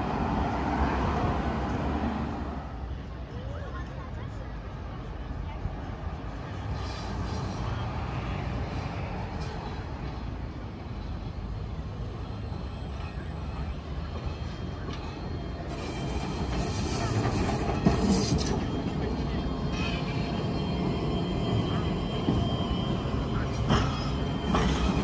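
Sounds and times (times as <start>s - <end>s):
tram rumbling on rails: 0.0s - 25.0s
hiss: 6.7s - 7.8s.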